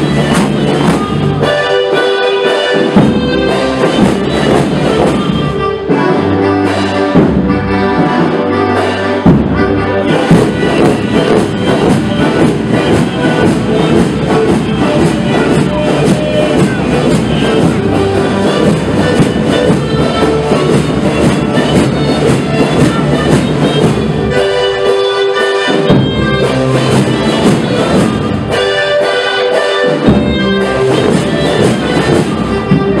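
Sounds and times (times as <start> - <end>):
marching brass band playing: 0.0 - 33.0.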